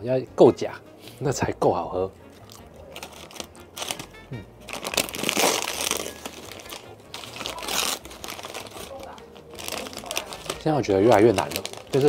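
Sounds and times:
paper napkin crinkling: 2.4 - 12.0.

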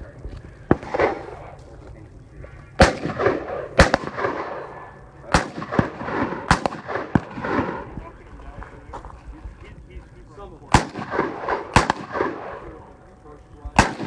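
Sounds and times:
gunshots with echo: 0.7 - 1.5, 2.8 - 7.9, 10.7 - 12.8, 13.8 - 14.0.

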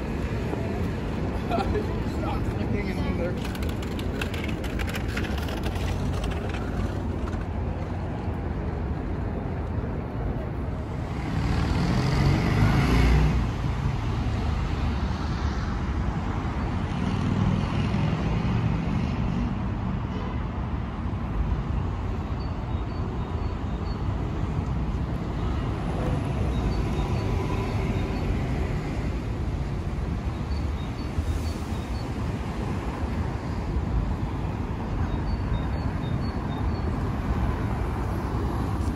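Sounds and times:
hum of passing cars: 0.0 - 38.9
vehicle passing by: 10.8 - 15.6.

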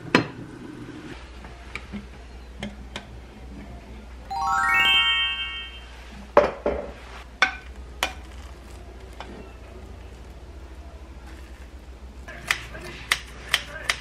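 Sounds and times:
rising chime glissando: 4.3 - 6.2.

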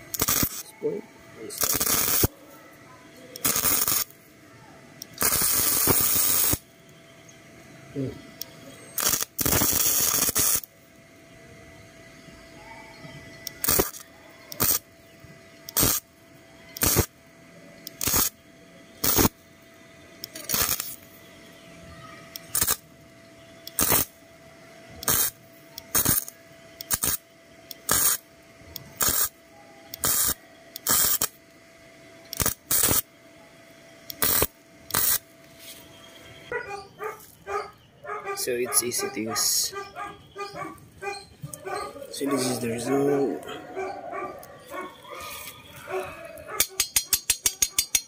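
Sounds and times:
welder arc bursts: 0.0 - 2.5, 3.3 - 4.4, 5.0 - 6.9, 7.9 - 10.9, 13.4 - 31.6, 32.2 - 33.2, 34.0 - 35.4
faint steady hum: 0.0 - 48.0.

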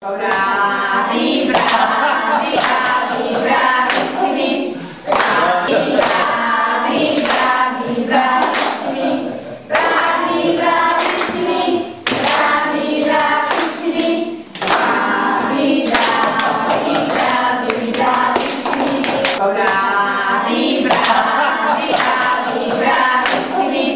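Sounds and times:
people singing together: 0.0 - 23.9
hand claps: 1.5 - 1.8, 2.4 - 4.2, 5.1 - 6.4, 7.1 - 7.6, 8.4 - 8.8, 9.7 - 11.4, 12.0 - 13.8, 14.5 - 19.9, 20.9 - 21.2, 21.8 - 23.6.

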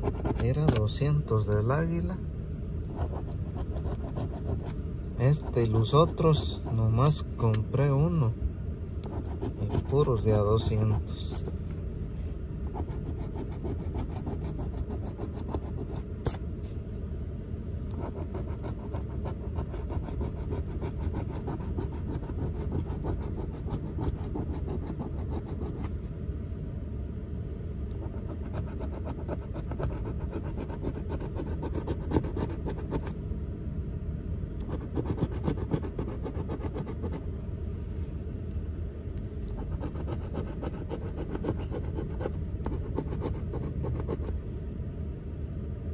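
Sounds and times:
coin scraping scratch card: 0.0 - 1.0, 3.0 - 6.9, 12.7 - 16.4, 18.0 - 25.9, 28.0 - 33.2, 34.6 - 37.2, 39.5 - 44.3.

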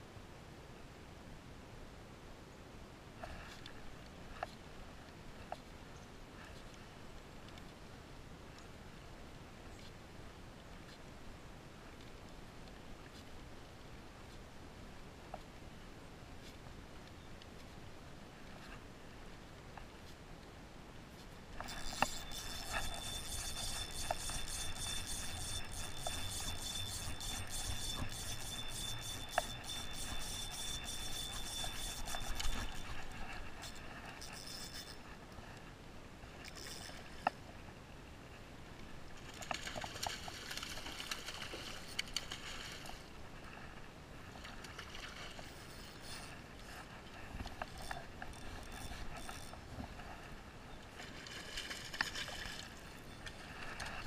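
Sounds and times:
reel clicks: 21.5 - 35.4, 36.3 - 37.5, 39.2 - 43.1, 44.6 - 49.9, 51.1 - 54.0
fishing reel whirring: 21.6 - 35.1, 36.4 - 37.4, 45.4 - 46.4, 47.4 - 49.7.

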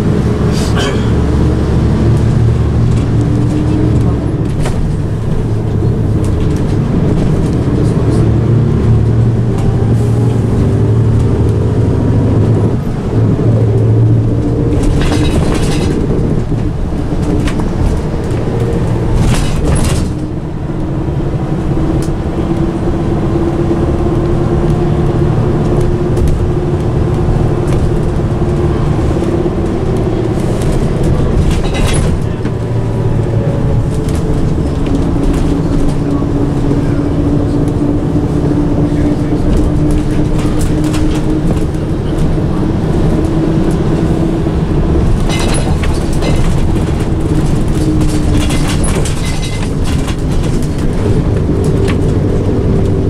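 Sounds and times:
bus diesel engine: 0.0 - 53.0
knocks and rattles: 14.4 - 20.4, 29.6 - 33.0, 44.9 - 53.0.

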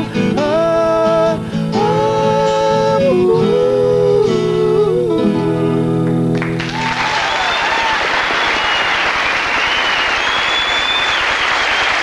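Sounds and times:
audience applauding: 6.4 - 12.0
high whistles: 7.1 - 12.0.

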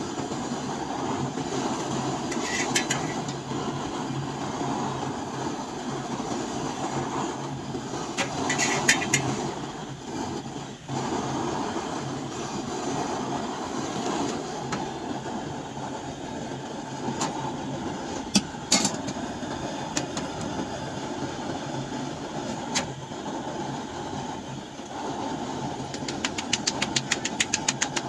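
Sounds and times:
gas stove burner roaring: 0.0 - 28.0
dough patted between palms: 25.8 - 28.0.

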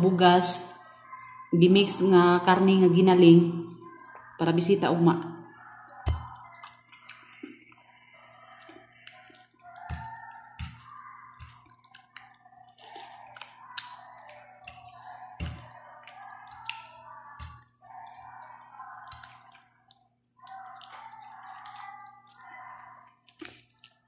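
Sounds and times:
noodles slurped and chewed: 5.7 - 24.0.

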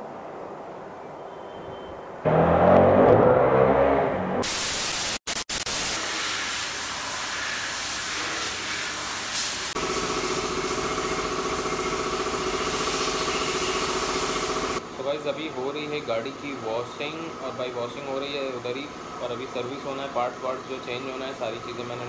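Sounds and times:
pressure washer spraying: 4.4 - 14.8
washer motor hum: 9.8 - 14.9.

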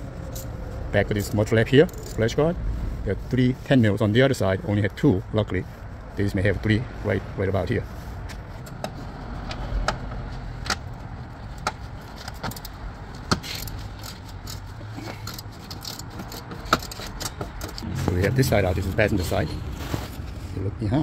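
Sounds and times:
ratchet clicking on nuts: 11.6 - 17.8.

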